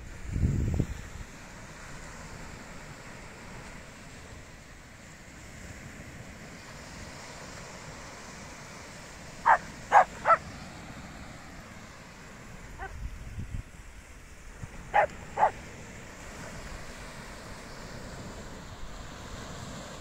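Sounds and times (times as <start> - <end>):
surf washing: 0.0 - 20.0
small dog barking: 9.4 - 10.5, 12.8 - 13.0, 14.9 - 15.6.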